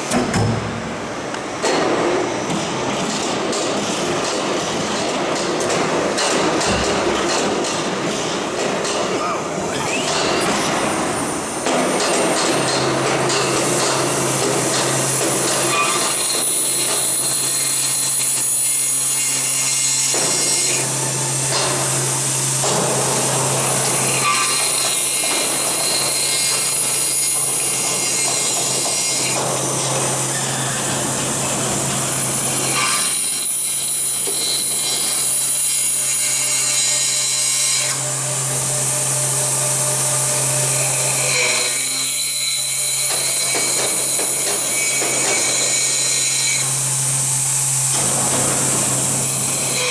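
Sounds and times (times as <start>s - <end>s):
tool cutting aluminium: 4.0s - 49.9s
high spindle whine: 9.1s - 20.1s.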